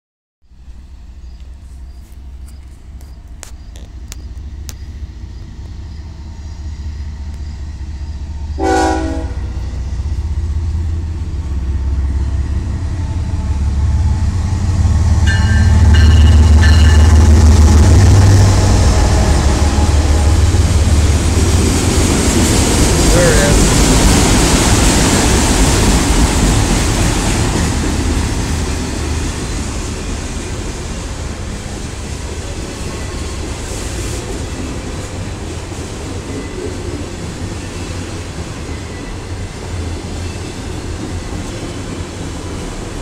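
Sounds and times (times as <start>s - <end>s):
diesel locomotive rumble: 0.5s - 43.0s
train wheels rushing on rails: 0.7s - 43.0s
locomotive horn blast: 8.6s - 9.8s.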